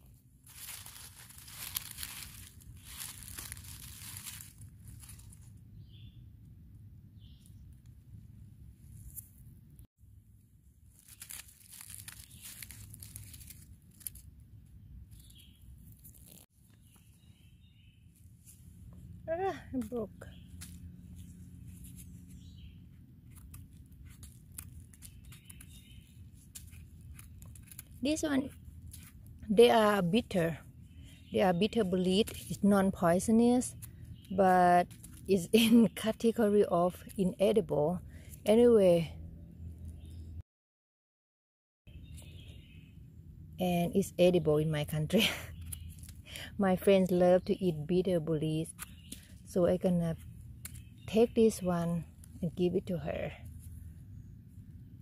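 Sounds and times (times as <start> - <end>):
dry leaf litter rustling: 0.4 - 5.6, 10.8 - 14.4, 23.4 - 30.3, 45.2 - 46.2
mushroom breaking clicks: 11.0 - 14.3.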